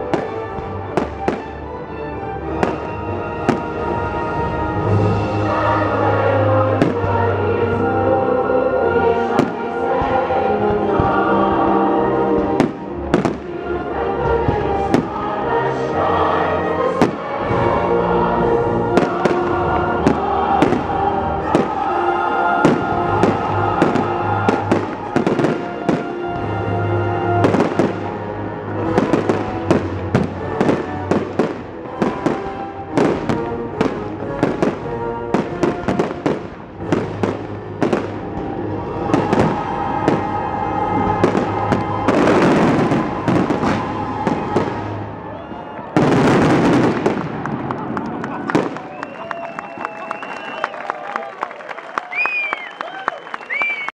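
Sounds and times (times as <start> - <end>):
music: 0.0 - 51.2
fireworks bursting: 6.6 - 7.3, 12.4 - 13.6, 18.8 - 26.6, 27.4 - 28.2, 28.8 - 45.1, 46.0 - 50.0.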